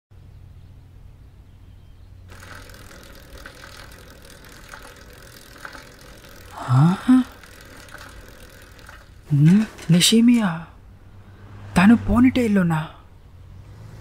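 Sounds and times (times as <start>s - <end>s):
bicycle rolling: 2.2s - 11.1s
person humming questioningly: 6.6s - 7.4s.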